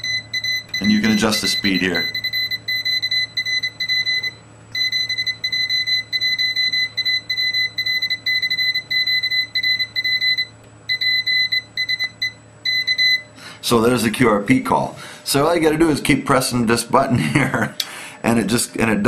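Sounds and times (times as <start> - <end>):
buzzer beeping morse code: 0.0 - 13.3.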